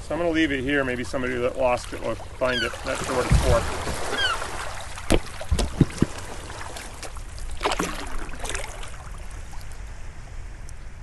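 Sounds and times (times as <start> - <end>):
water lapping over stones: 0.8 - 9.8
splashes: 0.9 - 9.8
plastic buoy thudding on cobbles: 5.1 - 6.2.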